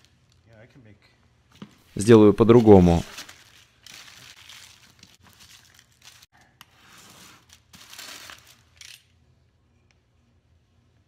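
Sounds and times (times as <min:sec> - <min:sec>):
plastic and paper crinkling: 0:02.4 - 0:09.0.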